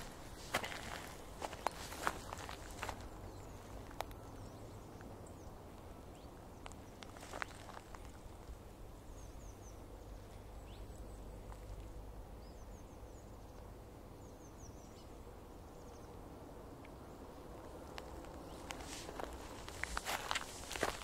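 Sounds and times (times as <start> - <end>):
footsteps on pine needles: 0.0 - 3.2, 7.0 - 8.2, 18.0 - 21.0
small birds chirping: 0.0 - 21.0.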